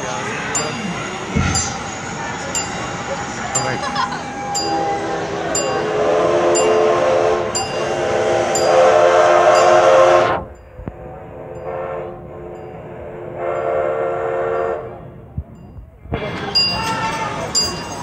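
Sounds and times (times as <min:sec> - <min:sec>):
faint bell ringing: 0:00.2 - 0:06.0, 0:07.6 - 0:08.8, 0:14.5 - 0:18.0
steam whistle blast: 0:04.4 - 0:10.5, 0:11.4 - 0:12.3, 0:13.2 - 0:15.0.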